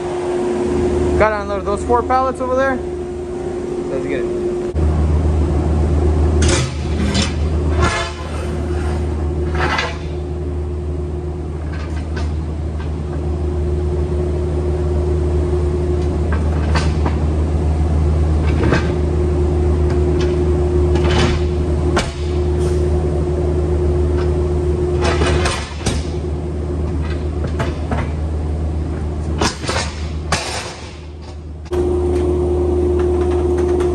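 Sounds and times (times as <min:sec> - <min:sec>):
low engine drone: 0:00.0 - 0:33.9
metal plate clanking and scraping: 0:06.4 - 0:10.3, 0:20.2 - 0:22.9, 0:25.0 - 0:26.2, 0:29.4 - 0:31.4.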